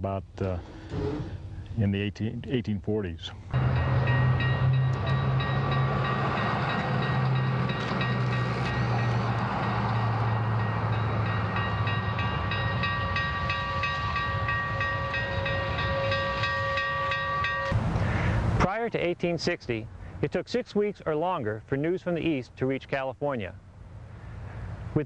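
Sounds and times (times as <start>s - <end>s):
steam locomotive rumbling: 3.4s - 18.7s.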